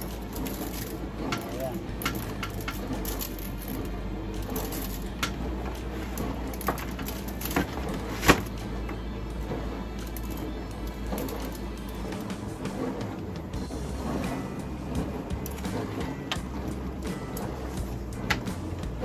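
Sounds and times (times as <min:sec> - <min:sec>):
steady low hum: 0:00.0 - 0:19.0
foil pan crinkling and clicking: 0:04.6 - 0:08.6.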